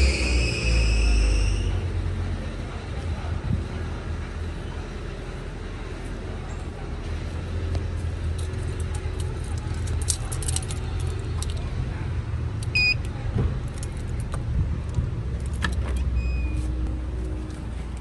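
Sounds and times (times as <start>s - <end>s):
steady low rumble: 1.2s - 18.0s
keys jangling: 8.3s - 11.6s.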